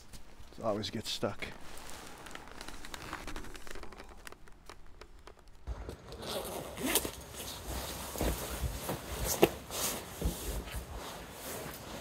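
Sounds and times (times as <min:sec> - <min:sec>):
fabric rustling: 0:00.0 - 0:12.0
helmet clicks and scrapes: 0:01.4 - 0:12.0
jacket zipper opening: 0:01.6 - 0:07.7.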